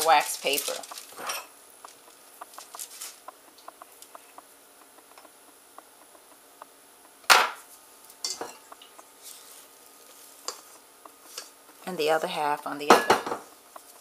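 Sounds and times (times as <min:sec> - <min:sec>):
kitchenware knocking and clattering: 0:08.3 - 0:08.6, 0:12.9 - 0:13.5.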